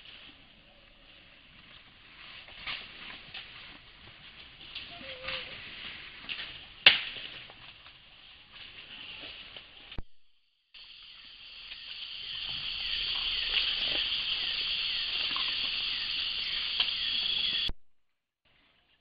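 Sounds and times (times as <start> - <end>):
insects buzzing and chirping: 10.4 - 17.7.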